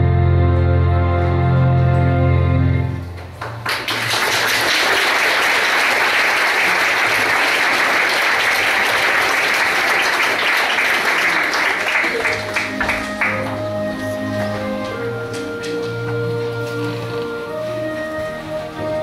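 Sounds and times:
audience applauding: 0:03.2 - 0:16.2.

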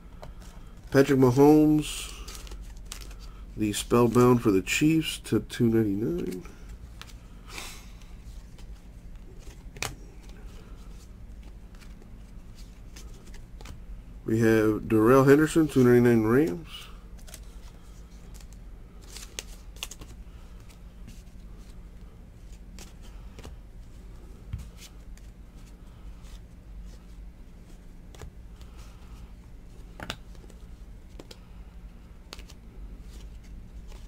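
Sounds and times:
steady low hum: 0:00.0 - 0:34.0
trading cards clicking and rustling: 0:00.2 - 0:13.8, 0:15.1 - 0:21.8, 0:22.4 - 0:23.6, 0:29.7 - 0:31.5, 0:32.2 - 0:34.0.

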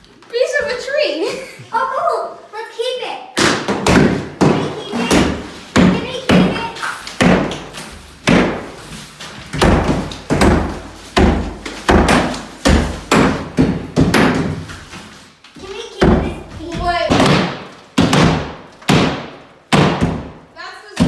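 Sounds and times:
hard thuds on drywall: 0:03.4 - 0:08.9, 0:09.5 - 0:15.0, 0:16.0 - 0:20.4.

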